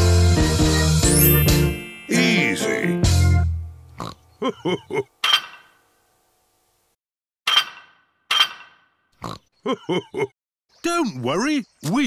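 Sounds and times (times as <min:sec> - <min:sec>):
sharp ringing clinks: 0:01.1 - 0:02.9
cartoon pig snorts: 0:09.2 - 0:09.4.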